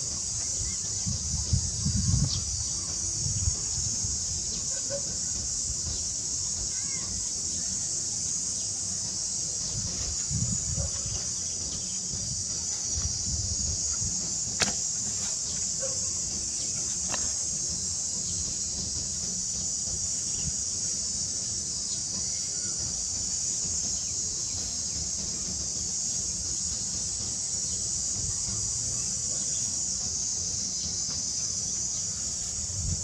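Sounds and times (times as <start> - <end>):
high-pitched insect chorus: 0.0 - 33.0
sharp click: 14.6 - 14.8.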